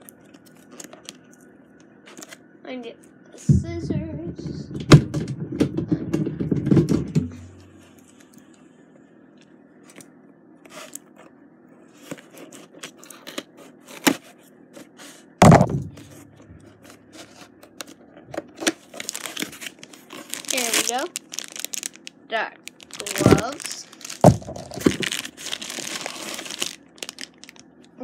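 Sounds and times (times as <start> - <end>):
heavy thump: 3.5 - 7.6, 15.4 - 16.7.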